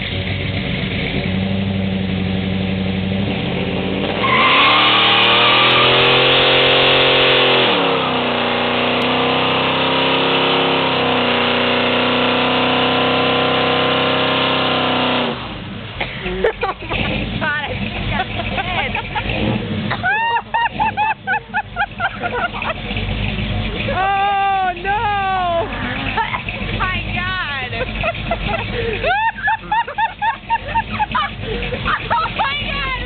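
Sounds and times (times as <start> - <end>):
car engine revving: 0.0 - 33.0
tyres squealing: 4.2 - 6.8.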